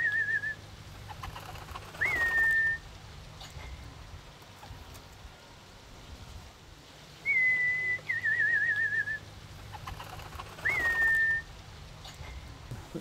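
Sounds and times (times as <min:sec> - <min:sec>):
person whistling: 0:02.0 - 0:02.8, 0:07.2 - 0:09.2, 0:10.6 - 0:11.4.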